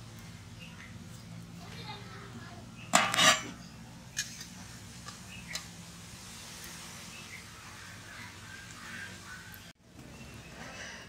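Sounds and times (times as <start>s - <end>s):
steel ladle clattering on metal plate: 2.9s - 3.6s.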